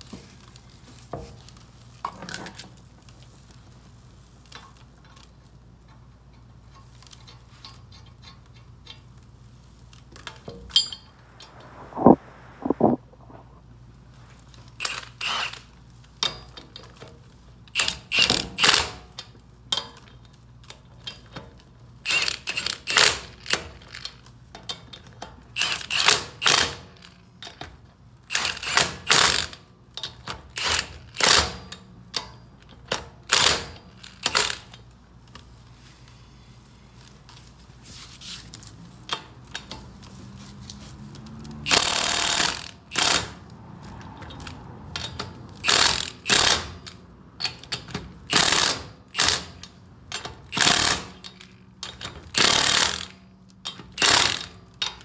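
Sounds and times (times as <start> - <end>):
impact wrench bursts: 41.7 - 43.4, 45.6 - 46.9, 48.3 - 49.7, 50.4 - 51.4, 52.3 - 53.2.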